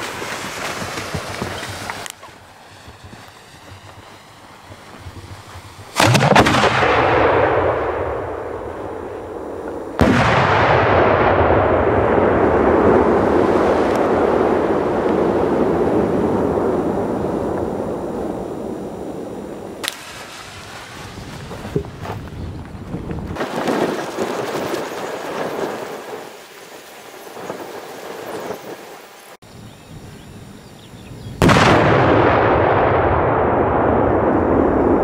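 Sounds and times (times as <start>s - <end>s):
firework launch bang: 5.9s - 8.6s, 9.9s - 15.2s, 31.4s - 35.0s.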